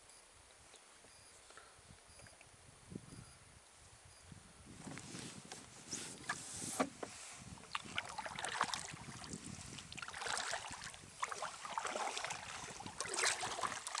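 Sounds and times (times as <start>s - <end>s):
paddle splashing water: 7.6s - 14.0s.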